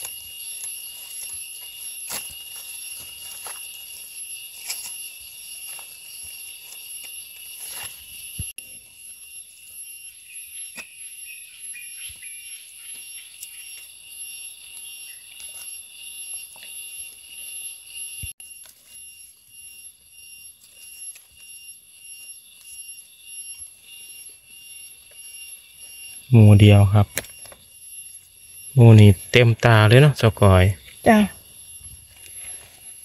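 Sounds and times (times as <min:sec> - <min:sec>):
footsteps in leaf litter: 0:00.0 - 0:08.4
insects droning: 0:00.0 - 0:33.0.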